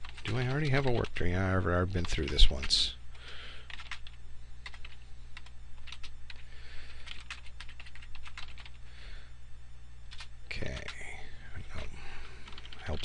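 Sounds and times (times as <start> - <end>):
computer keyboard typing: 0.0 - 8.8, 10.1 - 11.0, 12.4 - 13.0.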